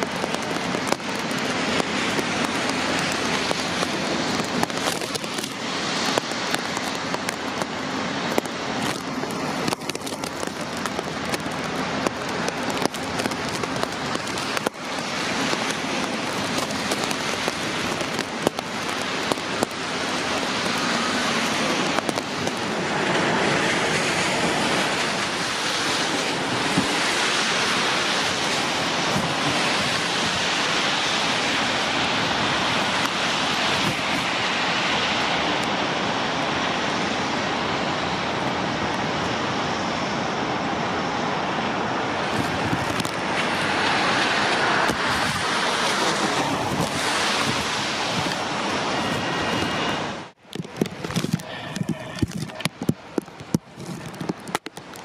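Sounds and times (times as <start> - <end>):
raindrops tapping: 0.0 - 35.7, 42.2 - 55.0
heavy rain hiss: 0.0 - 55.0.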